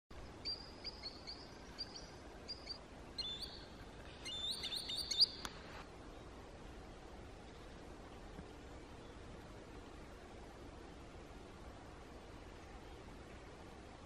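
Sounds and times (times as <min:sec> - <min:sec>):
sandpiper whistled calls: 0:00.4 - 0:05.4.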